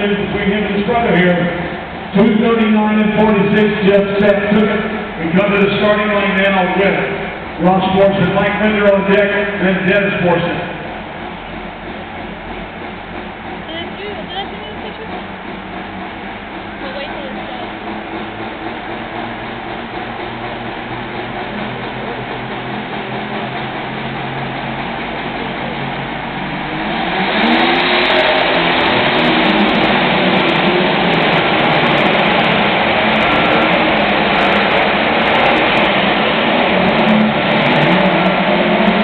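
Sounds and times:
tractor engine revving under load: 0:00.0 - 0:39.0.

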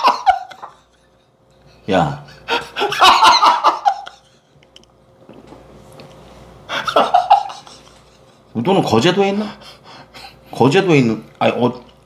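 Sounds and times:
man laughing loudly: 0:00.0 - 0:01.4, 0:02.4 - 0:04.6, 0:06.7 - 0:08.6.

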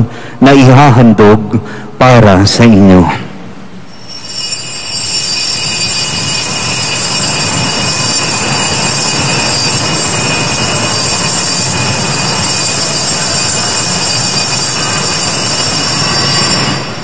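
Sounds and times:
altar bells jangling: 0:03.9 - 0:17.0.

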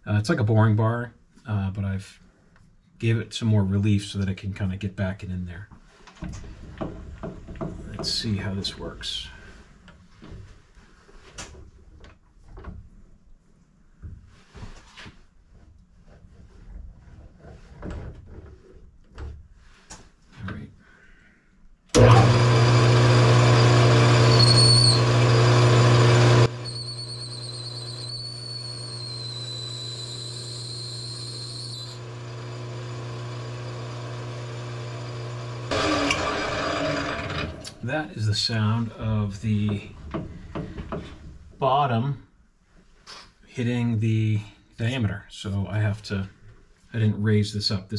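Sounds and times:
metal lathe humming: 0:22.0 - 0:37.8
boring tool rubbing in bore: 0:22.1 - 0:37.7
faint high whine: 0:23.6 - 0:36.2.

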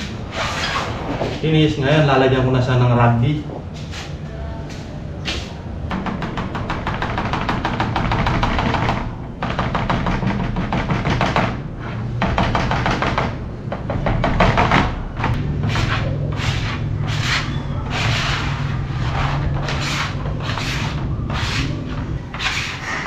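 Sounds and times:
steady low hum: 0:00.0 - 0:23.0
applicator scraping on wood board: 0:14.6 - 0:23.0.

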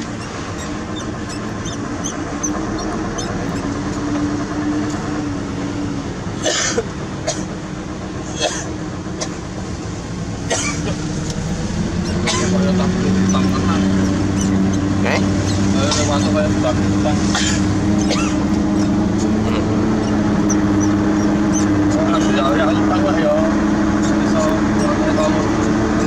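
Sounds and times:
diesel truck engine running: 0:00.0 - 0:26.0.

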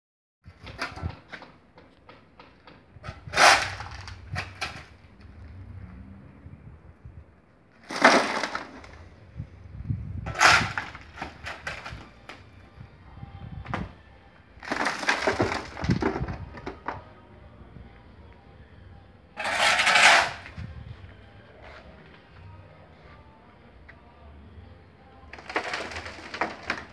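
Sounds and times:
rubble tipped into wheelbarrow: 0:03.0 - 0:05.0, 0:07.8 - 0:09.1, 0:10.2 - 0:12.4, 0:14.6 - 0:17.0, 0:19.4 - 0:20.6, 0:25.3 - 0:26.9
shovel scraping concrete rubble: 0:03.0 - 0:05.0, 0:07.8 - 0:09.2, 0:10.2 - 0:12.4, 0:14.6 - 0:16.8, 0:19.4 - 0:20.7, 0:25.3 - 0:26.9.

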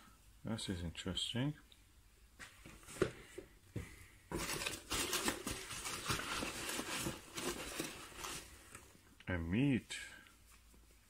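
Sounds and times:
foam packing peanuts rustling: 0:04.3 - 0:08.8.

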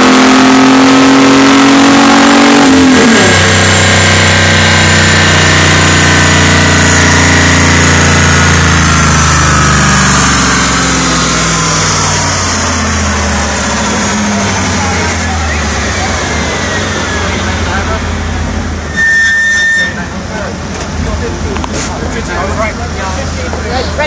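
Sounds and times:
car engine idling: 0:03.4 - 0:18.9, 0:20.0 - 0:24.0.

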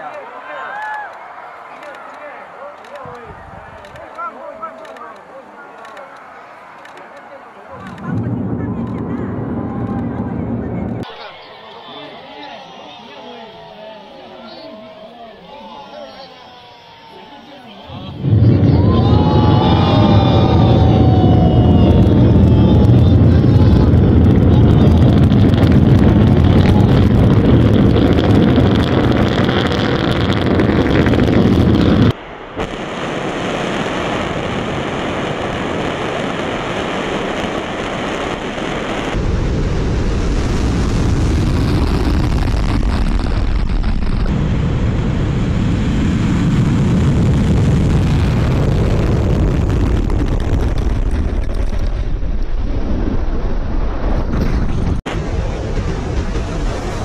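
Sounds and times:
distant rocket engines roaring: 0:01.8 - 0:57.0
rocket liftoff roar: 0:06.2 - 0:11.3, 0:16.4 - 0:57.0.

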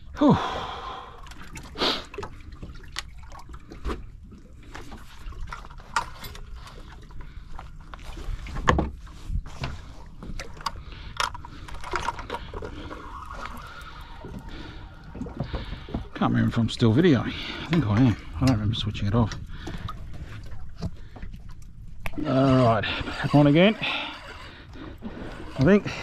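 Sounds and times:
water slapping against hull: 0:00.6 - 0:26.0
knocks and clatter on boat: 0:08.3 - 0:12.8, 0:15.1 - 0:16.8.

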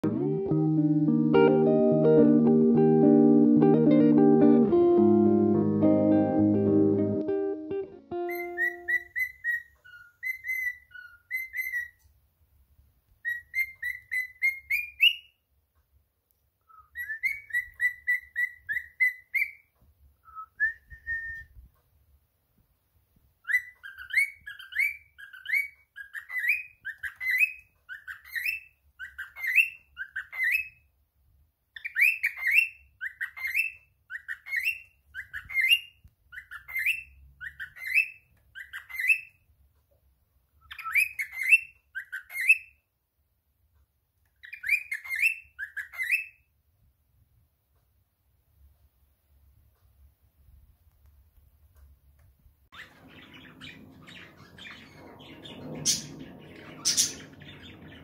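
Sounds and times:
cockatiel whistling: 0:08.1 - 0:12.0, 0:13.2 - 0:15.3, 0:16.7 - 0:19.6, 0:20.2 - 0:21.6, 0:23.4 - 0:30.8, 0:31.8 - 0:39.4, 0:40.6 - 0:42.7, 0:44.4 - 0:46.4, 0:52.8 - 0:58.0.

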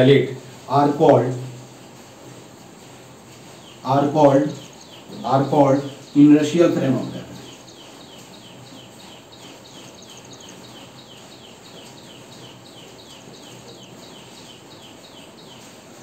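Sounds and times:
small animal chirping: 0:04.4 - 0:06.2, 0:07.4 - 0:15.6.

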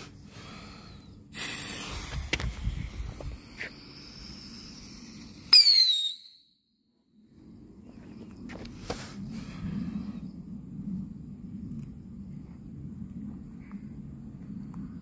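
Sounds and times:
shrill firework whistle: 0:05.5 - 0:06.6.

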